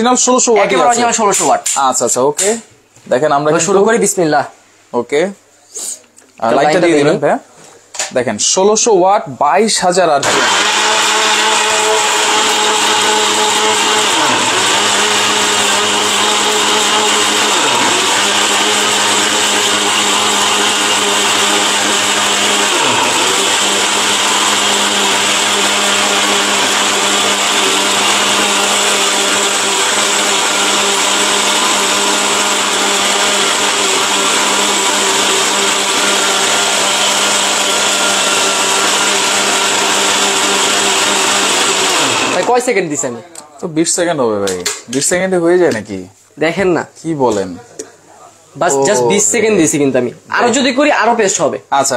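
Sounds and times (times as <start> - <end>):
blender grinding: 10.2 - 43.0.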